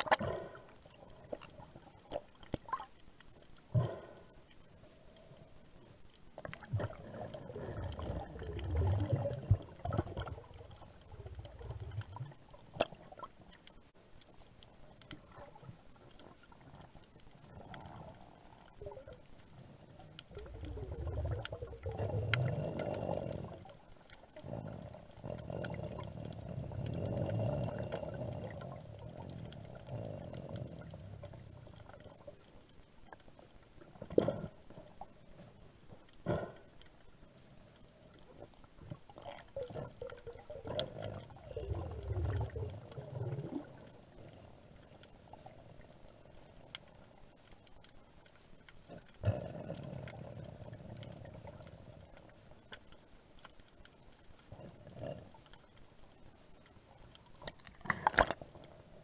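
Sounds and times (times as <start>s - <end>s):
underwater gurgling and bubbling: 0.0s - 3.0s, 6.4s - 13.7s, 14.8s - 33.2s, 38.0s - 47.2s, 48.8s - 52.7s, 54.4s - 55.6s.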